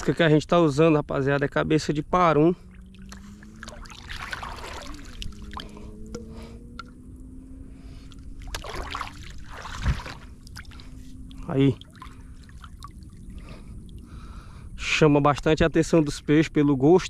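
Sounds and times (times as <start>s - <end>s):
faint steady hum: 0.0s - 17.0s
float splashing into water: 2.6s - 6.9s, 8.1s - 11.0s, 11.7s - 14.1s
river water splashing: 2.6s - 7.0s, 7.6s - 14.3s.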